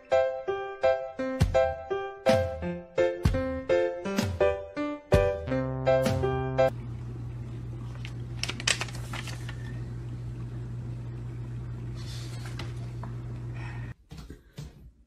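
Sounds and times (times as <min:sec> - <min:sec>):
background music: 0:00.0 - 0:06.7
low electrical hum: 0:06.7 - 0:14.0.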